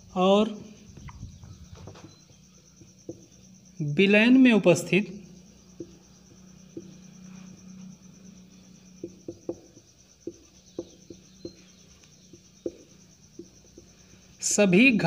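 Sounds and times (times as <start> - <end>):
marker tapping on whiteboard: 6.7 - 7.0, 9.0 - 11.7, 12.3 - 13.9.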